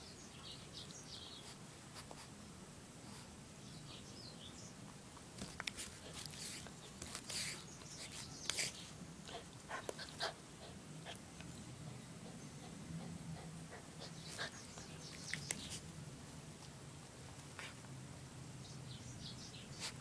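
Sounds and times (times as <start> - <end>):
dog sniffing: 5.6 - 11.2, 12.2 - 15.8.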